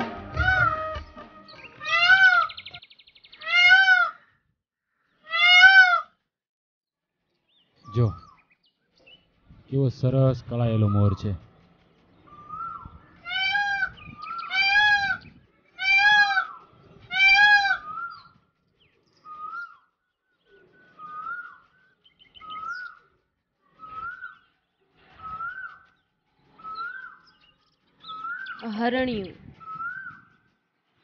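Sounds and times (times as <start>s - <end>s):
peacock calling loudly: 0.0s - 2.8s, 3.4s - 4.3s, 5.1s - 6.2s, 12.3s - 18.3s.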